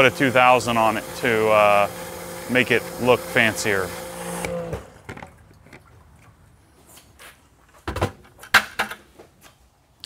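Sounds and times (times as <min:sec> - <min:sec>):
pressure washer motor hum: 0:00.0 - 0:05.2.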